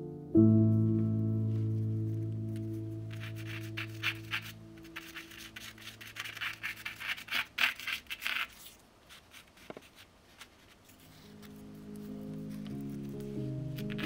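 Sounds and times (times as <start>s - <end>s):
charcoal scratching on paper: 3.1s - 14.0s.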